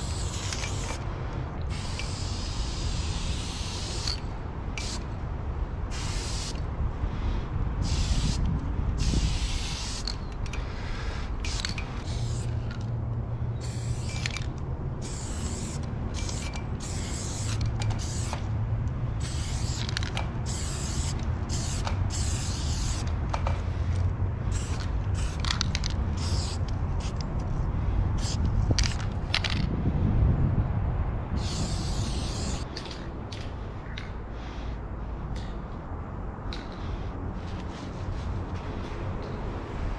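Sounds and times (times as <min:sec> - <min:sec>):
spray paint can hissing: 0:00.0 - 0:01.0, 0:01.7 - 0:05.1, 0:05.9 - 0:06.7, 0:07.8 - 0:12.8, 0:13.6 - 0:18.5, 0:19.2 - 0:23.6, 0:24.4 - 0:27.2, 0:28.2 - 0:29.6, 0:31.4 - 0:33.0.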